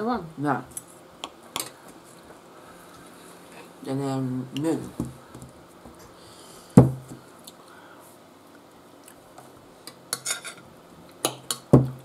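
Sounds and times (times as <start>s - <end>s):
cutlery clinking on plates: 10.1s - 10.6s.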